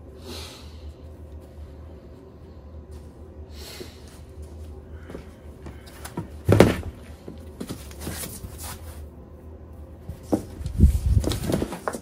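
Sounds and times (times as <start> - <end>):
foam and cardboard rustling: 5.8 - 9.0, 10.1 - 12.0.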